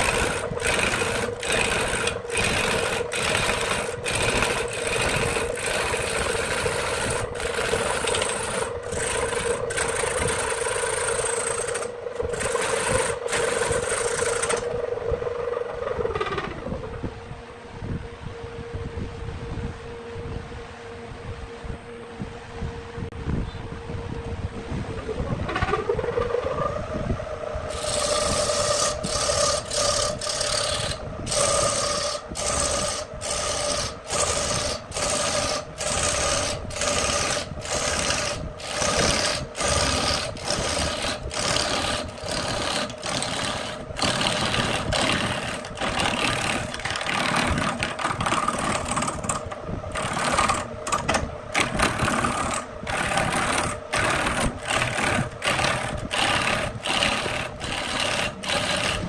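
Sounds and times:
gouge cutting spinning wood: 0.0 - 14.8, 27.6 - 59.0
lathe motor hum: 0.0 - 16.9, 25.5 - 59.0.

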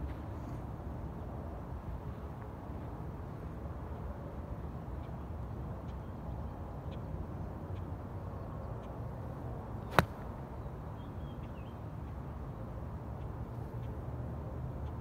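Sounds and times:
golf club striking ball: 9.9 - 10.2.

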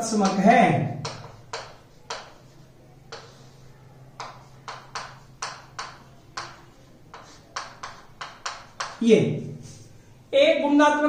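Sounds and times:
chalk scratching on chalkboard: 0.2 - 0.4, 1.0 - 9.0.

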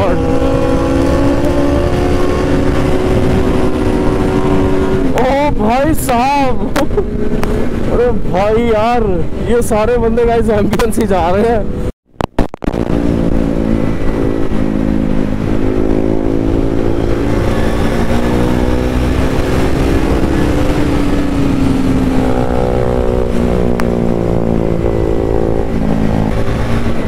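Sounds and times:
motorcycle engine running: 0.0 - 9.4, 10.7 - 27.0
road noise rushing: 0.0 - 27.0.

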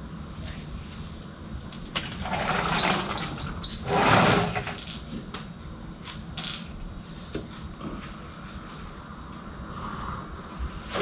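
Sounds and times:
rush of noise: 7.8 - 11.0.

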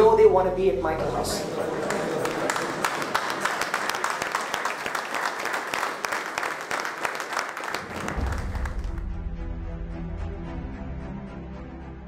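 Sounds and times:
audience applauding: 1.0 - 9.1
music: 7.8 - 12.0.

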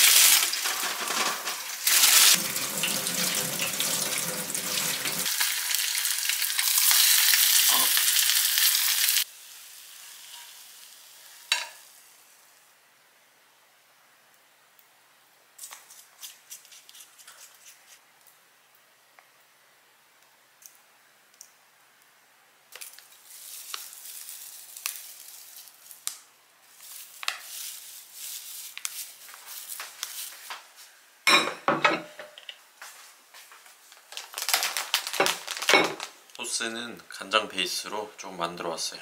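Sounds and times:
dry flakes crinkling: 22.7 - 30.8, 33.5 - 36.4
plastic packaging rustling: 22.8 - 26.1, 26.7 - 30.9, 33.5 - 36.3.

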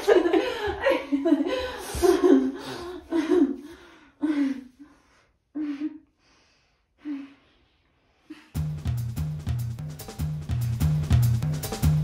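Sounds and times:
woman laughing and gasping: 0.0 - 4.8.

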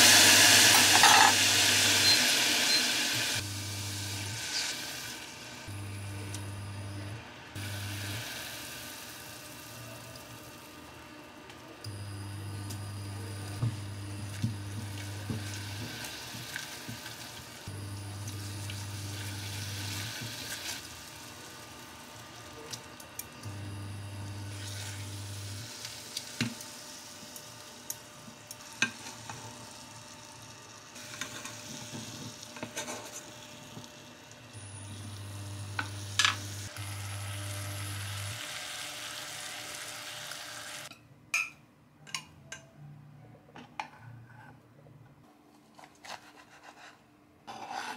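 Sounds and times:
sauce sizzling and bubbling: 0.0 - 5.8, 33.3 - 40.9.

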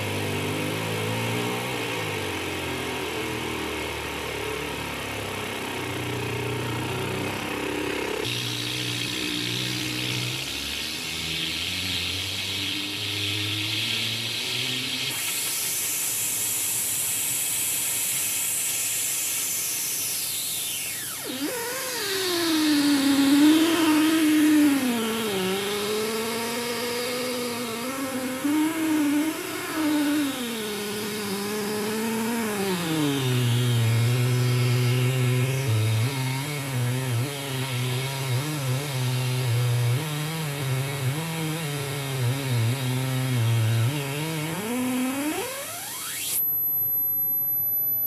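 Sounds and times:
buzzy electronic gliding tone: 0.0 - 16.5, 20.2 - 48.0
high steady whistle: 8.3 - 36.2, 43.8 - 48.0.

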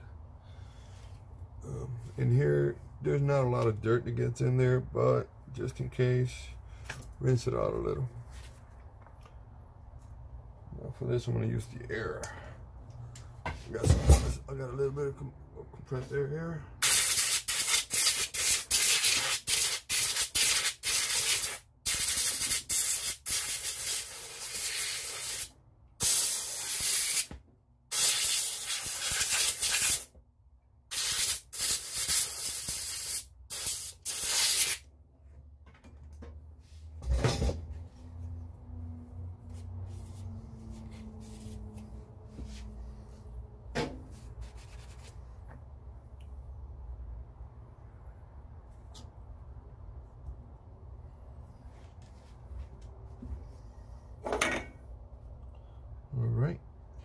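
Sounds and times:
compressed air hissing: 16.8 - 27.3, 27.9 - 30.1, 30.9 - 34.8.

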